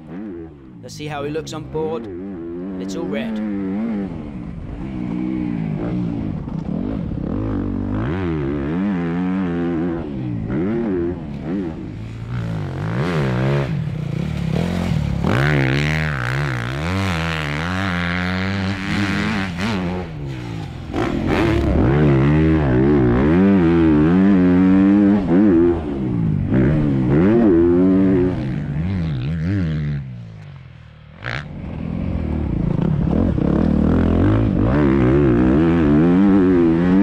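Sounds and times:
motorcycle engine revving: 0:00.0 - 0:37.0.

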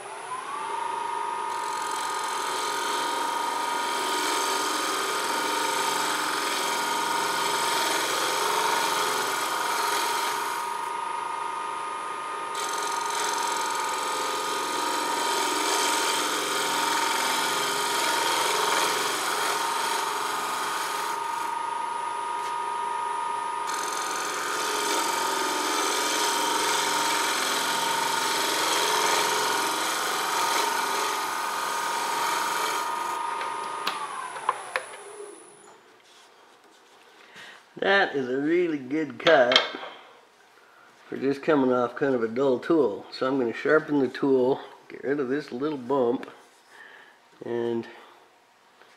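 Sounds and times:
lathe motor whine: 0:00.0 - 0:35.7
gouge shaving wood: 0:01.5 - 0:10.8, 0:12.6 - 0:21.5, 0:23.7 - 0:33.2.

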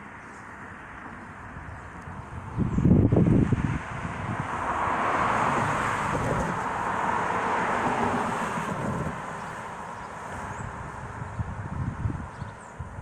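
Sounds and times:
car driving past: 0:02.5 - 0:11.4.

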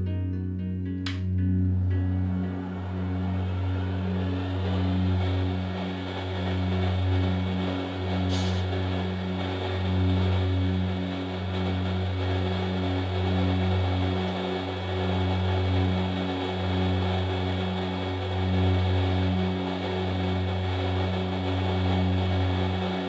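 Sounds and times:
milling machine motor humming: 0:02.2 - 0:23.0
brief hiss: 0:08.3 - 0:08.7.

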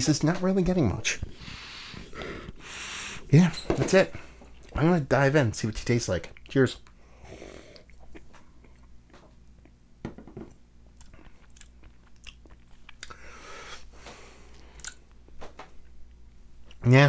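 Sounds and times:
mouth clicks and lip smacks: 0:10.9 - 0:13.2, 0:14.5 - 0:15.1.

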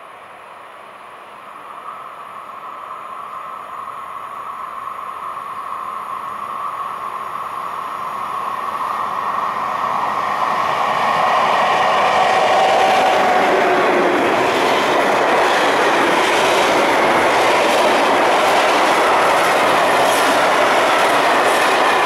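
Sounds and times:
electric locomotive approaching: 0:00.0 - 0:22.0
train wheels on rails: 0:00.0 - 0:22.0.

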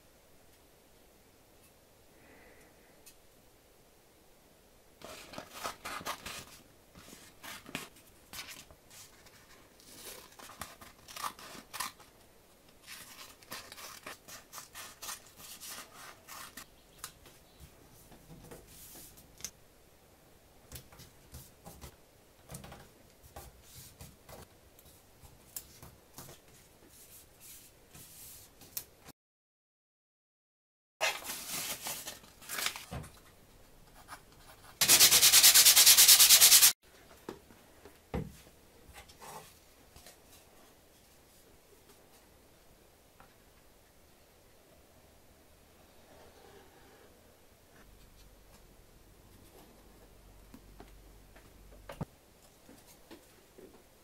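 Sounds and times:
paper rustling: 0:31.0 - 0:33.0.

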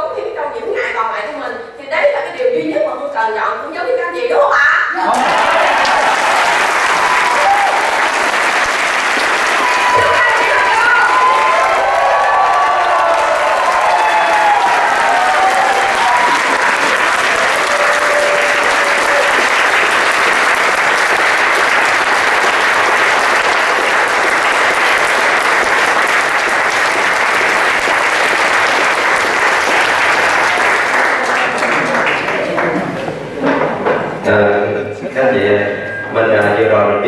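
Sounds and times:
audience applauding: 0:05.0 - 0:33.2.

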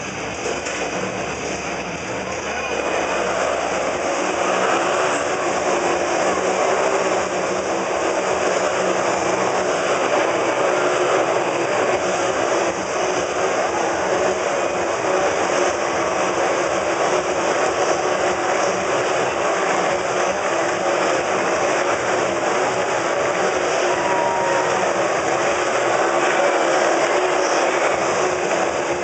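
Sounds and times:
motorcycle engines running: 0:00.0 - 0:29.0.

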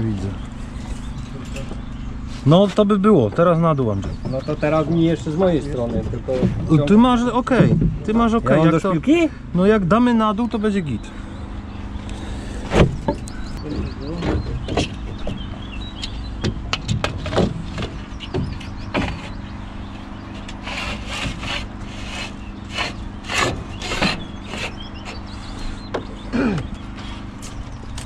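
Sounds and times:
steady low hum: 0:00.0 - 0:28.0
wooden knocks: 0:03.2 - 0:04.6, 0:05.8 - 0:08.4, 0:12.7 - 0:19.5
boards scraping and rubbing: 0:16.9 - 0:26.0.

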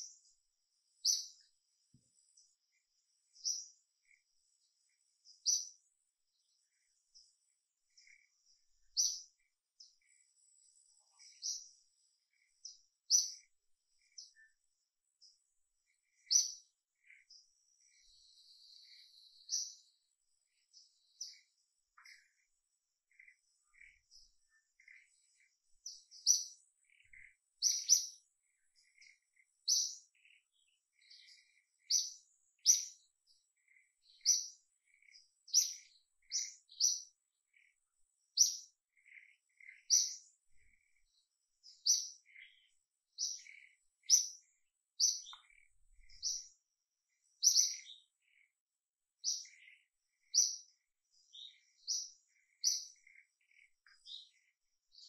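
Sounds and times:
fainter lower bird chirps: 0:00.0 - 0:55.0
high bird chirps: 0:23.1 - 0:33.1, 0:33.7 - 0:37.7, 0:38.3 - 0:46.6, 0:47.4 - 0:48.5, 0:49.2 - 0:55.0.

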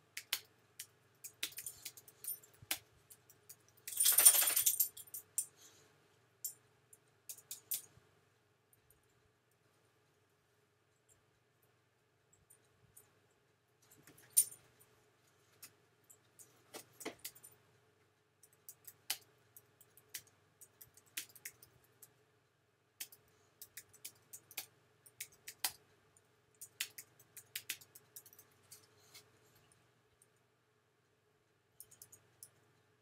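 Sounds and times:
faint steady hum: 0:00.0 - 0:33.0.

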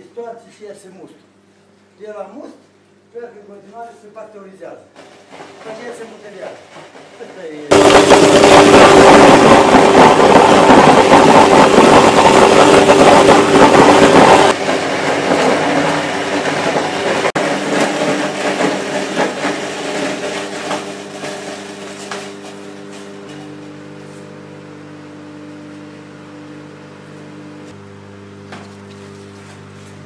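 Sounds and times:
apple mill crunching apples: 0:05.0 - 0:30.0
motor hum: 0:07.5 - 0:30.0.

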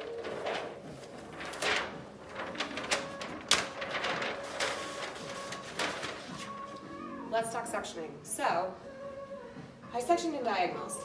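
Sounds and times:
paper sheets rustling and crackling: 0:00.0 - 0:07.1.

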